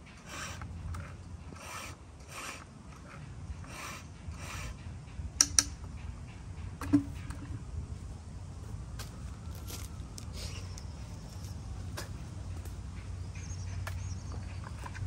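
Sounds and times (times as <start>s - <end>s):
sharp clicks: 5.4s - 5.8s.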